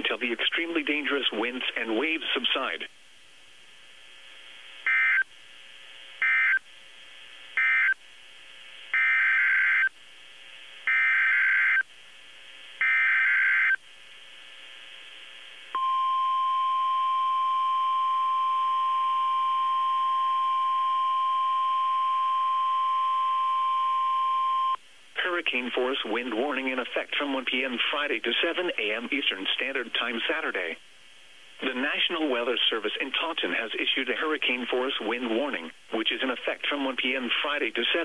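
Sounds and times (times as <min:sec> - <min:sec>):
steady warning alarm tone: 0:09.0 - 0:09.9, 0:10.9 - 0:11.8, 0:12.8 - 0:13.8.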